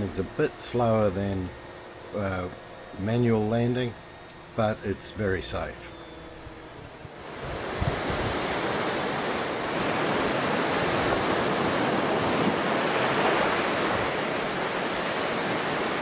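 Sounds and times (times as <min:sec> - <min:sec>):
surf washing onto beach: 0:07.2 - 0:16.0.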